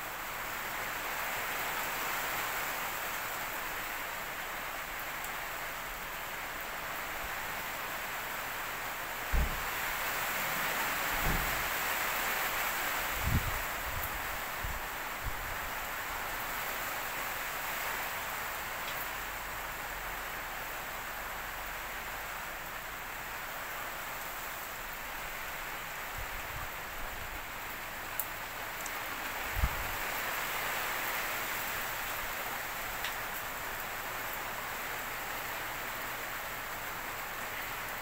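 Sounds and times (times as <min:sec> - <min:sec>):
rain hissing on roof: 0:00.0 - 0:38.0
low thumps: 0:09.3 - 0:09.8.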